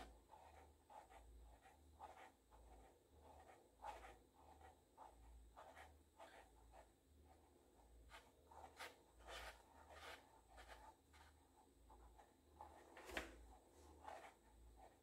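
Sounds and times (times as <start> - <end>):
shoe rubbing and scuffing: 13.0 - 13.4.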